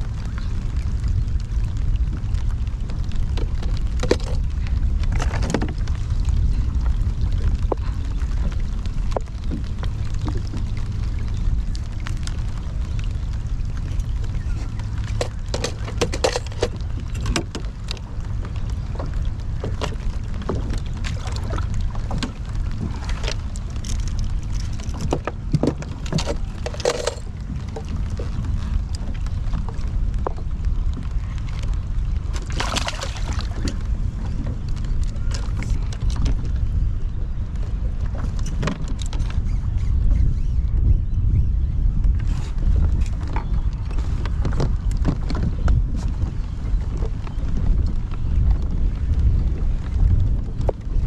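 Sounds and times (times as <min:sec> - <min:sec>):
steady low rumble: 0:00.0 - 0:51.0
tackle clicks and knocks: 0:13.8 - 0:36.5
fish knocking against hull: 0:15.1 - 0:18.0.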